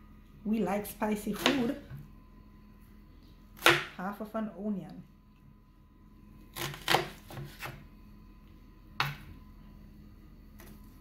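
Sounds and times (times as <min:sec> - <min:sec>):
knife chopping onion on board: 0:01.4 - 0:02.0, 0:03.6 - 0:04.0, 0:06.5 - 0:07.8.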